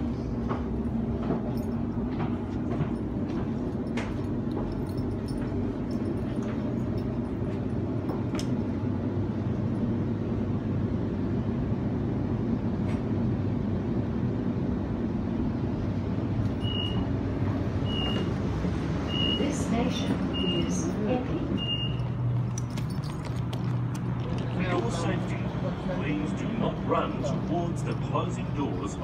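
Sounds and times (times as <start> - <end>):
electric train rumble: 0.0 - 29.0
door alert beeps: 16.6 - 17.0, 17.9 - 18.3, 19.1 - 19.4, 21.6 - 22.0.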